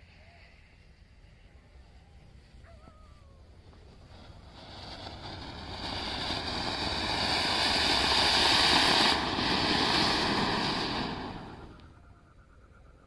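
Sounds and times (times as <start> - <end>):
fountain firework hissing: 0.0 - 11.9.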